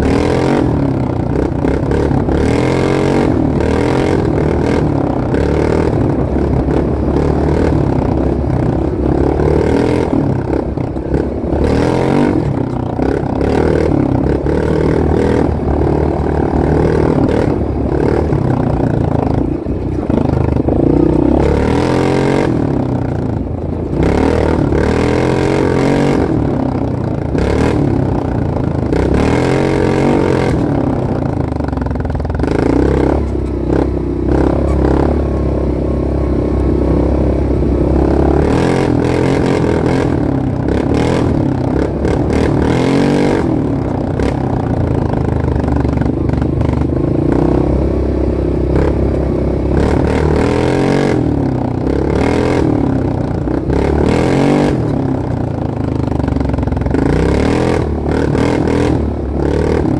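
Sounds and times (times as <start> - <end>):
off-road vehicle engine revving: 0.0 - 59.9
vehicle clattering and knocking: 3.6 - 25.2, 38.5 - 47.4.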